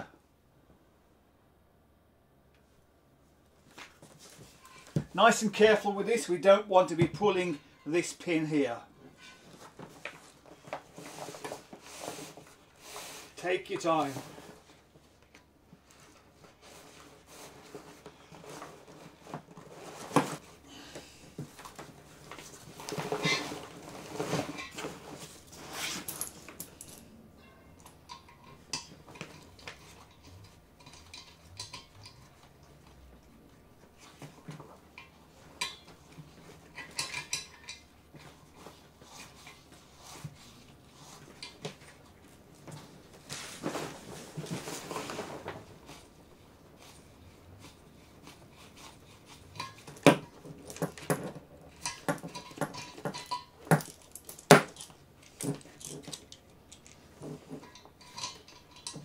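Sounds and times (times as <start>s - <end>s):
metallic clinks and knocks: 24.5s - 33.0s, 49.5s - 59.0s
fabric rustling: 38.3s - 49.8s.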